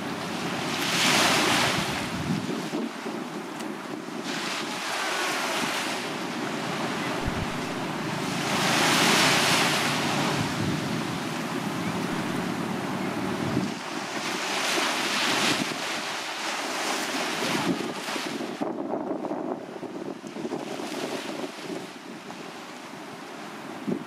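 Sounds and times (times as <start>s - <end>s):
waves washing up a beach: 0.0s - 24.0s
wind buffeting microphone: 1.5s - 22.4s.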